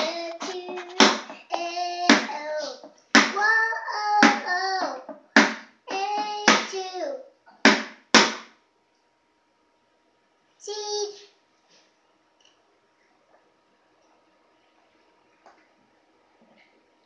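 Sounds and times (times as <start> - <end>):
sticks hitting plastic stool: 0.0 - 1.4, 2.0 - 3.4, 4.2 - 4.5, 5.1 - 6.8, 7.7 - 8.5.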